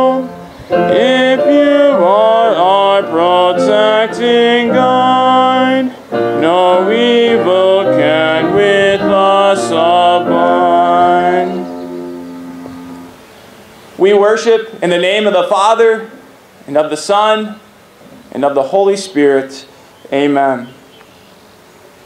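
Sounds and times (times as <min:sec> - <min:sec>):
group singing a hymn: 0:00.0 - 0:13.2
instrumental accompaniment: 0:00.0 - 0:13.4.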